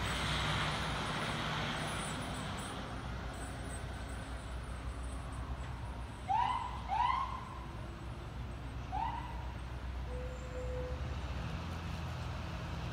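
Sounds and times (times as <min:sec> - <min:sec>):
low rumble of engine and traffic: 0:00.0 - 0:12.9.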